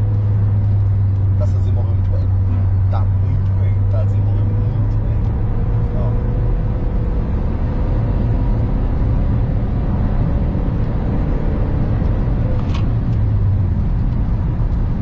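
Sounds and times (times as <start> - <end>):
engine and road noise rumble: 0.0 - 15.0.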